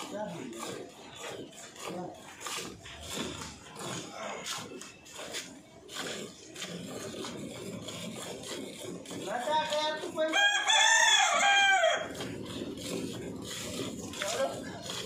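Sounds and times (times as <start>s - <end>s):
rooster crowing: 10.3s - 12.2s.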